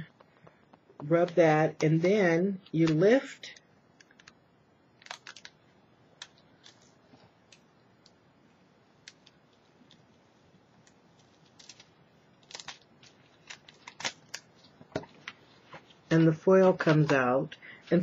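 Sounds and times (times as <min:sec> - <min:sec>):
foil being peeled: 0:11.2 - 0:14.8.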